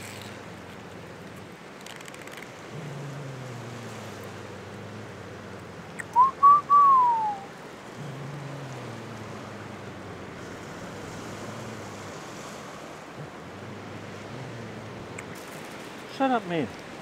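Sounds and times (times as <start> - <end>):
surf washing: 0.0 - 17.0
person whistling: 6.1 - 7.5.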